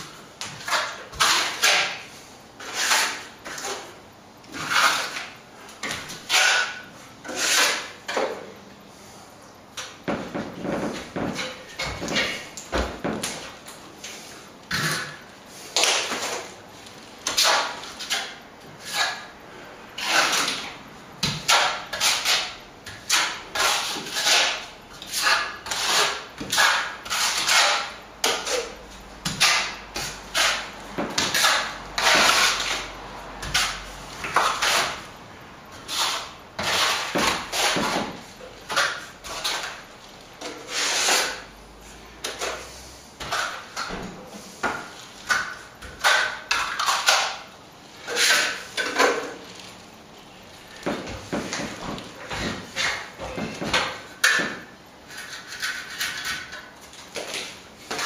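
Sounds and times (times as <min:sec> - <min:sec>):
trowel scraping plaster: 0:00.4 - 0:08.4, 0:17.2 - 0:19.3, 0:20.0 - 0:35.1, 0:35.7 - 0:41.5, 0:42.2 - 0:49.4, 0:50.8 - 0:58.0.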